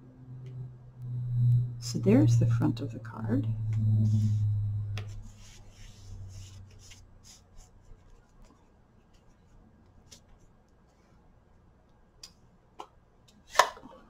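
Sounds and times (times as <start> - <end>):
low hum: 0.0 - 6.9.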